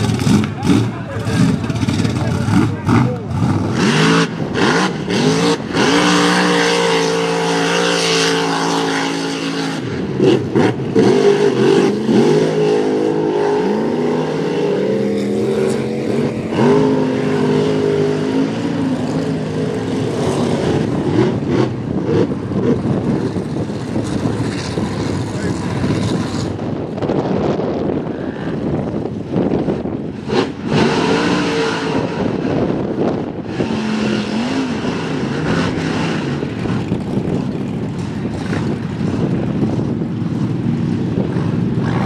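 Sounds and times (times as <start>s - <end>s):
supercharged engine revving hard: 0.0s - 23.2s, 30.2s - 37.2s, 41.8s - 42.0s.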